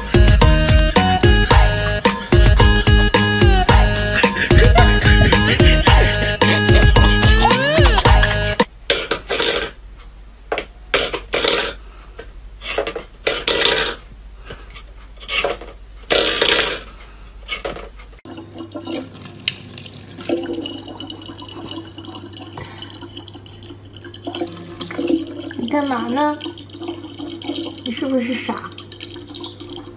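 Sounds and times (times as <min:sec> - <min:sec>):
tap water running into bottle: 0:18.3 - 0:29.9.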